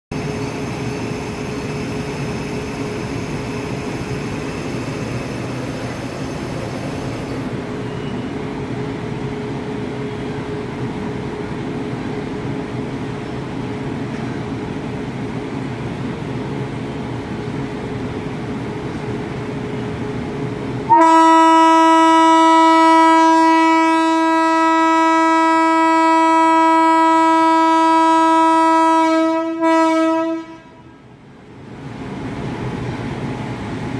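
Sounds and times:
locomotive horn blast: 20.9 - 31.0.

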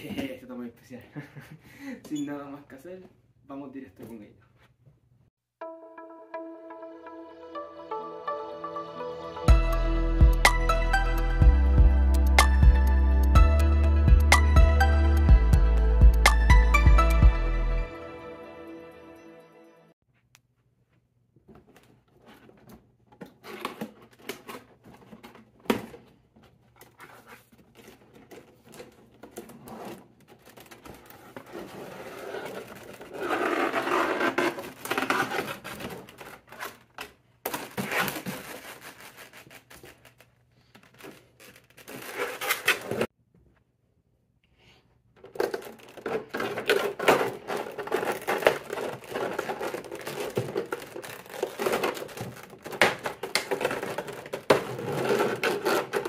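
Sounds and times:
plastic and cardboard crinkling: 21.4 - 43.1, 45.2 - 56.0.

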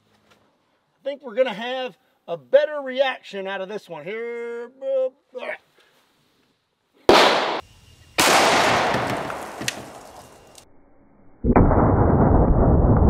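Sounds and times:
sharp gunshot bang with echo: 7.1 - 7.6, 8.2 - 9.4
deep muffled slowed rumble: 11.5 - 13.0.

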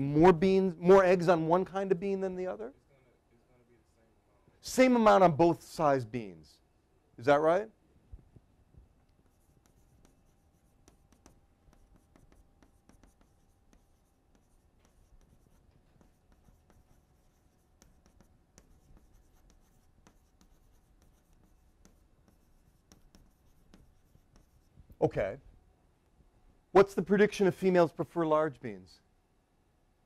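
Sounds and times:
faint scratching: 9.1 - 25.2.

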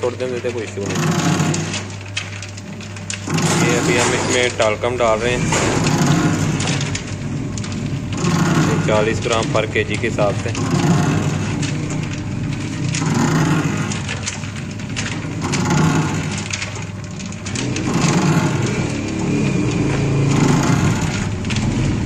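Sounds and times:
mixer hum with fine rattling: 0.0 - 22.0.

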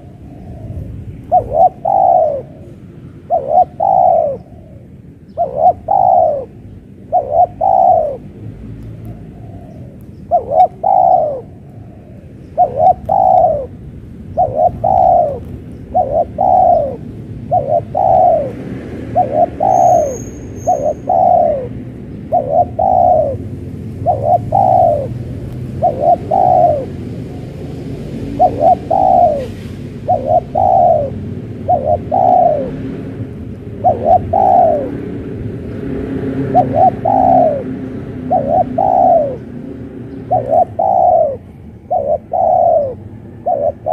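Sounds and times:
steady low rumble: 0.0 - 20.1
doves cooing: 0.0 - 35.4, 36.0 - 43.9
high bird chirp: 19.2 - 23.4.

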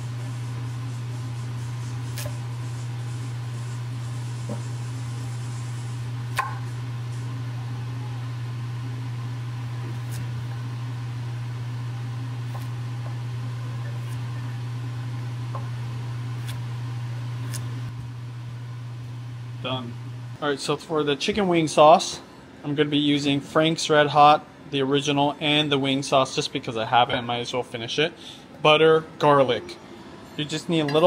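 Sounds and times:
kitchen appliance humming: 0.0 - 23.4
knife cutting on wooden board: 12.5 - 12.8.

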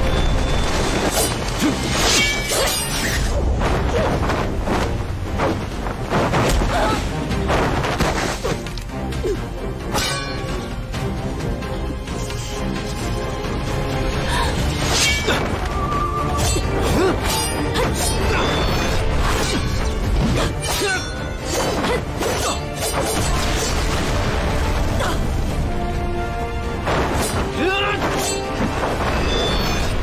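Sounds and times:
dramatic orchestral score: 0.0 - 30.0
swords clashing: 9.9 - 10.5.

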